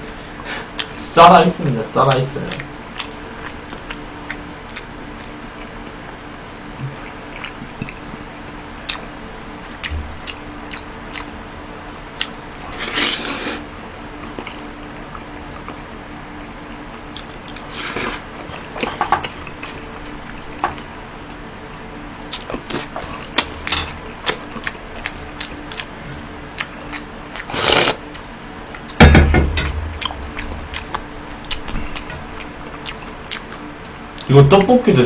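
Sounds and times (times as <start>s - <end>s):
wet chewing: 1.6s - 6.0s, 6.8s - 11.4s, 12.2s - 13.6s, 22.2s - 29.0s, 29.8s - 34.3s
loud slurps: 12.7s - 13.6s, 27.4s - 28.0s.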